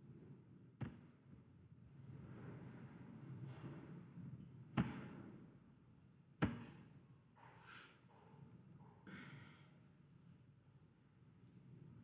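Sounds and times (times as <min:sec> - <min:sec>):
faint breath: 0:07.4 - 0:08.3, 0:09.0 - 0:09.9.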